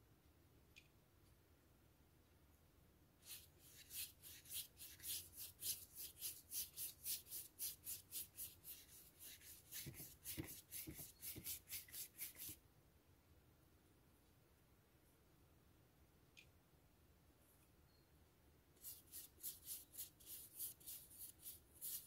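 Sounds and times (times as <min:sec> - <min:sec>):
paintbrush swishing on paper: 0:03.2 - 0:12.6, 0:18.8 - 0:22.0.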